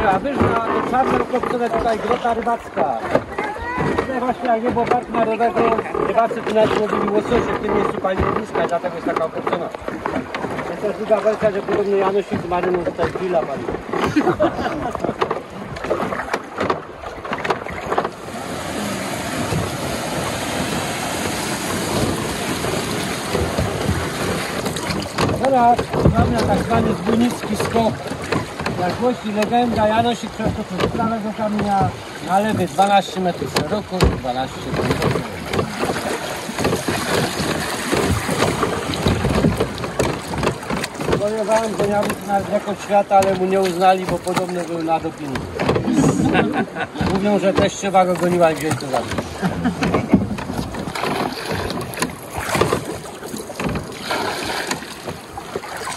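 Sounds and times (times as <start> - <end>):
river water rushing: 9.4 - 55.9
wind buffeting microphone: 9.8 - 44.5
knocks: 23.3 - 42.5.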